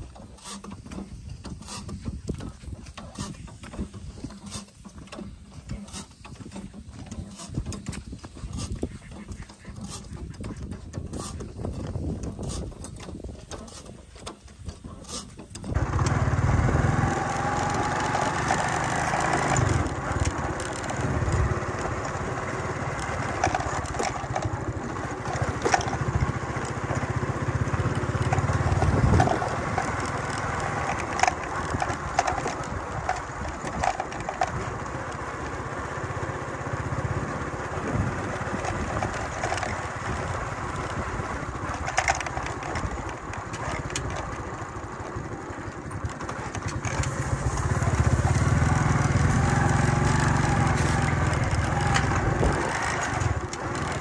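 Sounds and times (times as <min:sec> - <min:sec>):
wind noise on microphone: 0:00.8 - 0:18.6, 0:19.2 - 0:35.0, 0:37.0 - 0:44.4, 0:45.2 - 0:54.0
motorcycle engine running: 0:15.6 - 0:54.0.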